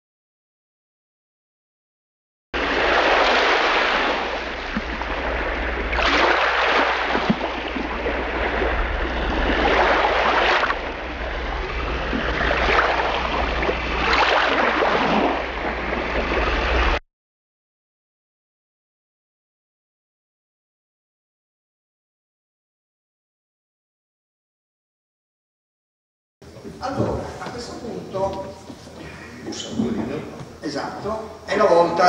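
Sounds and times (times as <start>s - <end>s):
low steady hum: 2.6s - 17.0s
rushing surf-like water: 2.6s - 17.0s.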